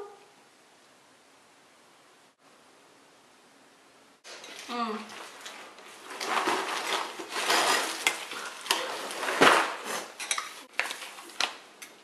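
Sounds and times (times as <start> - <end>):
paper and plastic crinkling: 4.3 - 11.7.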